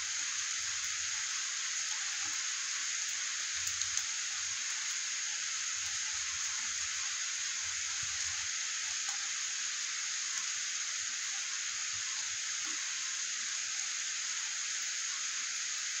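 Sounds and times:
heavy rain on street: 0:00.0 - 0:11.0.

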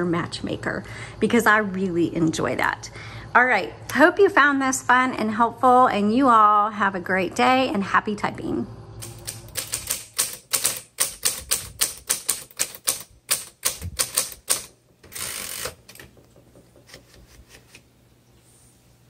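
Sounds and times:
typewriter keys striking: 0:09.0 - 0:17.7
typewriter rasp: 0:09.0 - 0:17.9.

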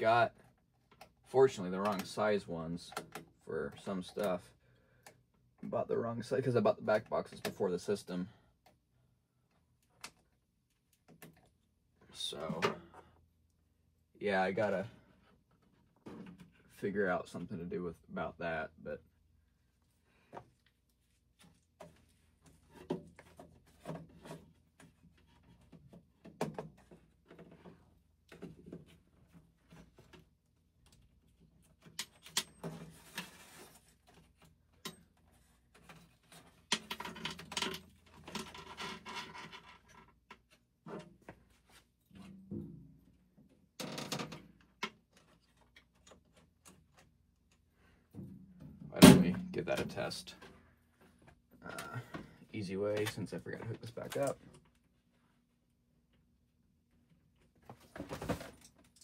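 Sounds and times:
rustling and scraping: 0:32.5 - 0:42.5, 0:57.4 - 0:58.9.

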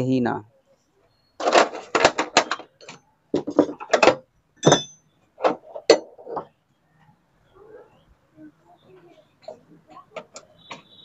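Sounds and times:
metal tools clattering on metal: 0:01.4 - 0:06.5.

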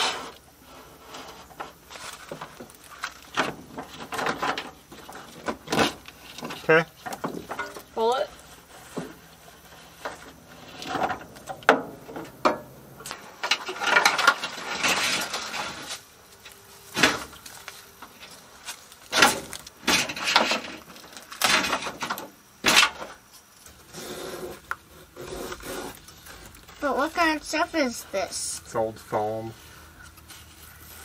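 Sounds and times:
rustling and scraping: 0:00.0 - 0:31.0
car parts knocking and clunking: 0:01.5 - 0:08.0, 0:08.9 - 0:15.8, 0:16.9 - 0:23.5.

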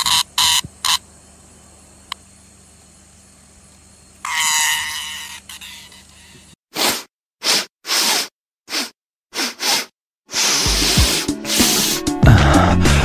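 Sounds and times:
katydid chirps: 0:00.0 - 0:06.4
katydid buzzing rasp: 0:00.0 - 0:12.7.

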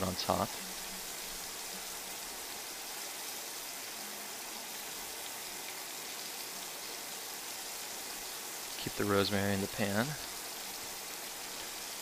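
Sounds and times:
meat sizzling in a skillet: 0:00.0 - 0:12.0.

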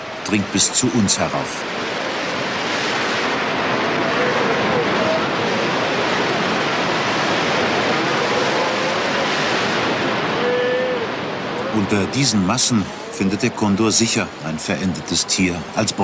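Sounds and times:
heavy surf breaking on rocks: 0:00.0 - 0:16.0
sea lions whimpering calls: 0:03.8 - 0:06.4, 0:07.6 - 0:11.9.

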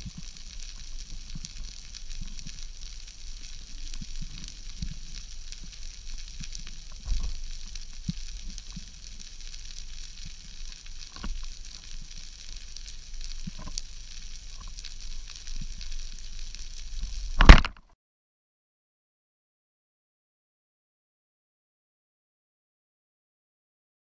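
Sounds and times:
underwater fizzing crackle: 0:00.0 - 0:17.8.

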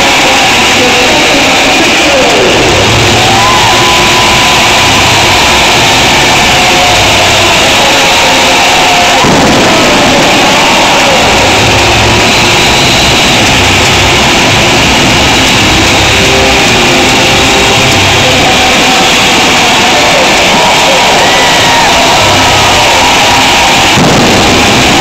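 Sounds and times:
stadium crowd roaring and cheering: 0:00.0 - 0:25.0
low booming music from speakers: 0:09.1 - 0:19.2, 0:23.7 - 0:25.0.

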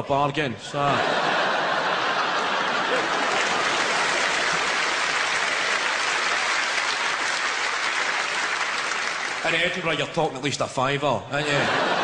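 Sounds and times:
audience applauding: 0:01.2 - 0:10.0.

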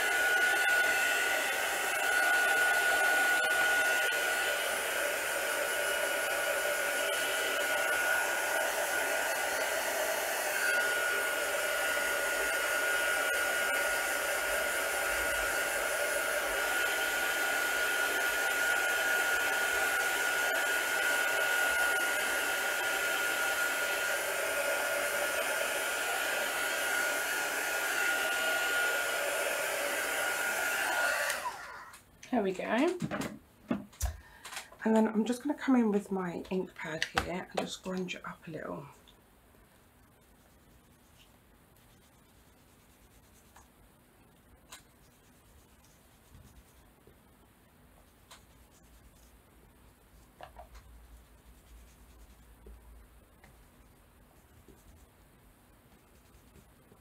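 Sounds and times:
craft dryer blowing with whine: 0:00.0 - 0:32.0.

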